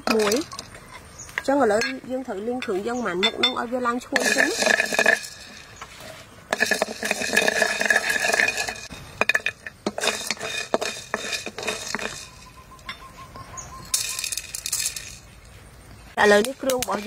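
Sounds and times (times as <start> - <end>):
peppercorns rattling: 0.0 - 0.8, 4.0 - 13.1, 13.7 - 15.5, 16.2 - 17.0
wooden spatula scraping wok: 4.1 - 13.4
peppercorns poured from bowl: 4.2 - 5.7, 6.5 - 12.6, 13.9 - 15.3
wok ringing: 9.4 - 13.2.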